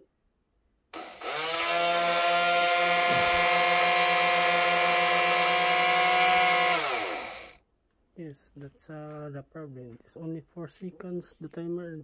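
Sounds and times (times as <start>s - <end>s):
electric motor whine: 1.0s - 7.6s.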